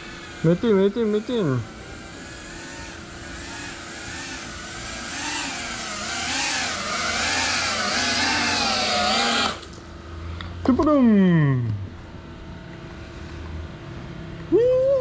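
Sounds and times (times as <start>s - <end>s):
drone motors and propellers whining: 0.0s - 9.8s.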